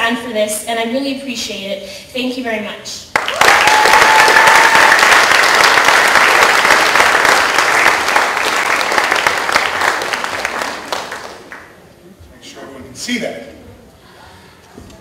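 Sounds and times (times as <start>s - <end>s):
audience applauding: 3.1s - 11.8s.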